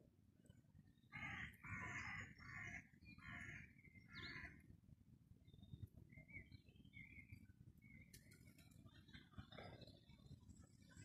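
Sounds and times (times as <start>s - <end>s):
small birds chirping: 0.4s - 4.7s, 5.4s - 11.0s
jackdaw cawing: 1.2s - 3.7s.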